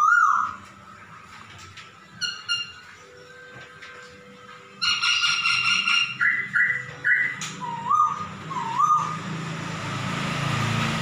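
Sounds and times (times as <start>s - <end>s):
bird whistling calls: 0.0s - 0.6s, 2.2s - 3.0s, 4.8s - 9.4s.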